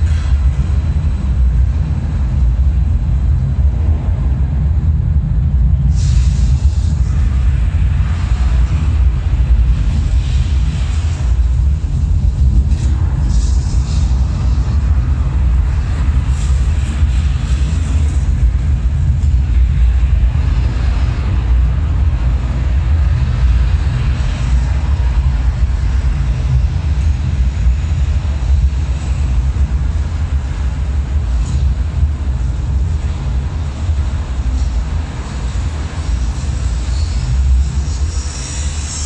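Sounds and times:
deep rumbling drone: 0.0 - 39.0.

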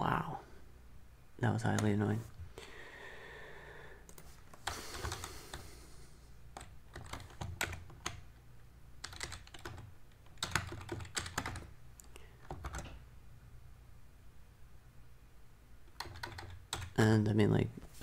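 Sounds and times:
keyboard typing clicks: 9.0 - 13.0, 15.9 - 17.0.

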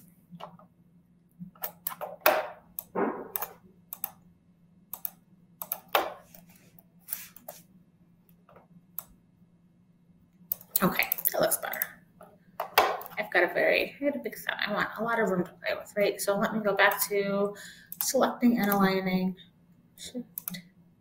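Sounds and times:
keyboard typing: 1.5 - 4.2, 4.9 - 6.4
faint low hum: 2.7 - 21.0.

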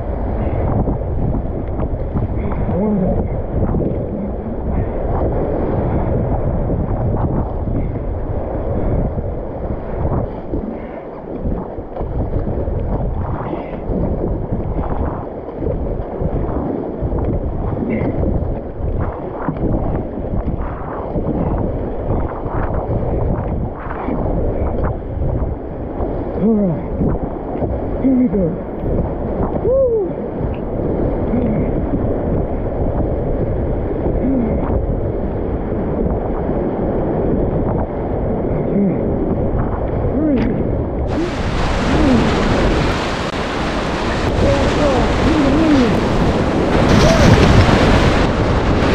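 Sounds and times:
wind buffeting microphone: 0.0 - 48.9
short pitched sounds: 41.1 - 48.5
kayak paddle strokes splashing: 41.1 - 48.9
river water rushing: 41.1 - 48.9.

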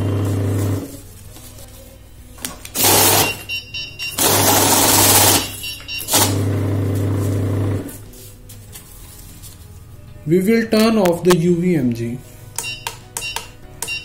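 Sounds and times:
money counting machine motor: 0.0 - 1.0, 2.8 - 3.5, 4.1 - 8.0
high electronic beeping: 2.8 - 6.4.

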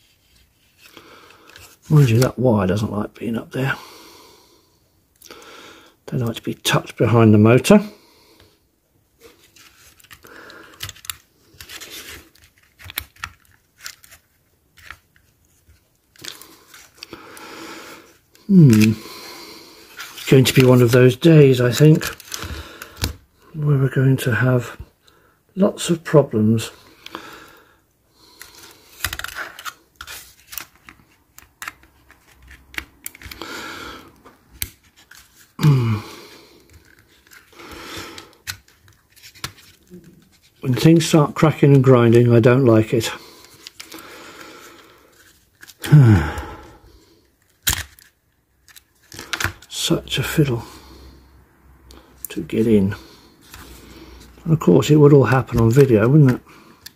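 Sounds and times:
plastic scraping and rustling: 9.2 - 17.2, 19.8 - 23.2, 28.3 - 33.4, 34.1 - 35.6, 36.5 - 45.9, 47.2 - 50.5
plastic clicking and cracking: 9.9 - 15.3, 28.4 - 33.4, 47.4 - 49.7
man grunting: 35.6 - 36.1, 45.8 - 46.6.

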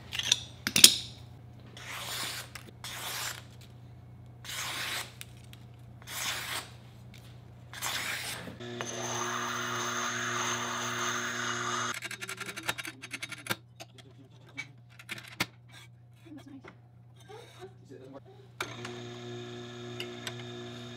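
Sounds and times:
knife slicing paper: 1.8 - 3.5, 4.4 - 5.4, 6.0 - 6.8
stone grader rasping on grindstone: 7.8 - 12.0
wet grinder humming: 8.6 - 12.0, 18.6 - 20.9.

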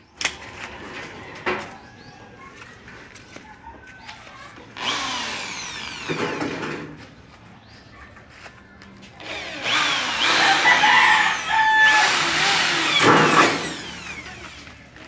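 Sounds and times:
electric drill whining: 4.8 - 6.5, 9.2 - 14.7.

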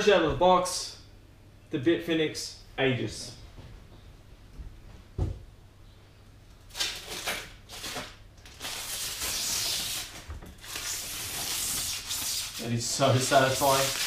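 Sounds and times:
plastic wrap rustling: 6.7 - 14.0.

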